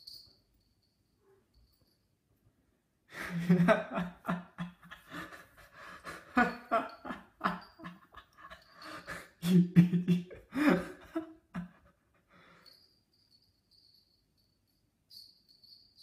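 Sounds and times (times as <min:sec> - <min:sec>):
man laughing under his breath: 0:03.1 - 0:12.8.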